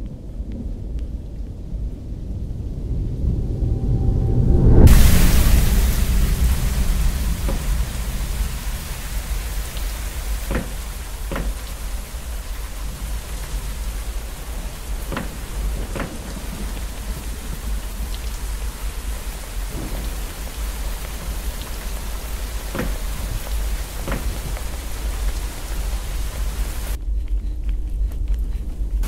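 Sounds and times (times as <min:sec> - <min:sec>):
steady rain hissing: 0:00.0 - 0:27.0
low rumble: 0:00.0 - 0:29.0
water drops falling: 0:04.9 - 0:27.0.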